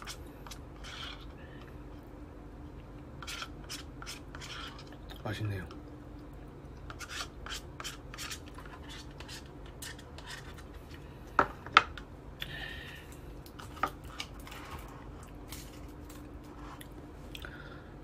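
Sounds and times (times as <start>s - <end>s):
spoon scraping plastic cup: 0.0s - 1.4s, 3.2s - 5.0s, 6.9s - 11.0s.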